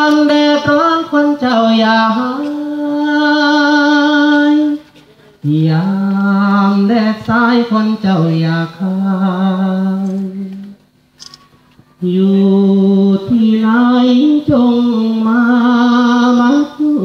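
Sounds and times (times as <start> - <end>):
person chanting: 12.0 - 17.0.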